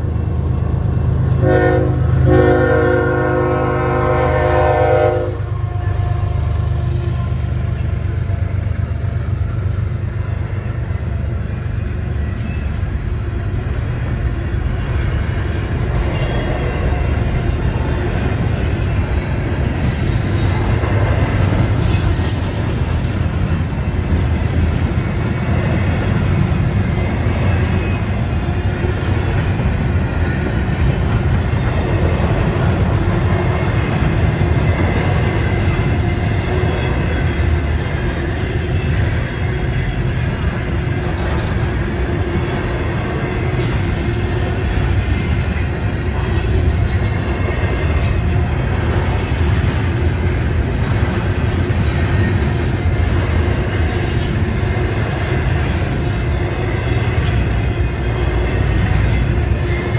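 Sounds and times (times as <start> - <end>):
train horn blasts: 1.3 - 7.4
wheel squeal: 14.9 - 16.5, 19.6 - 23.3, 51.8 - 59.9.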